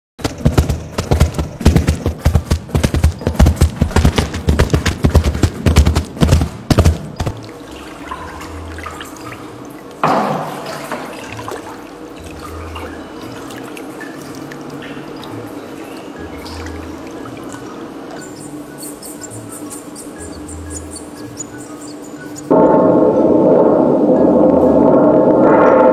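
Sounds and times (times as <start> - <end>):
crunching thumps in gravel: 0.2 - 7.5
water sloshing and dripping: 6.1 - 19.5
water splash: 6.3 - 15.3.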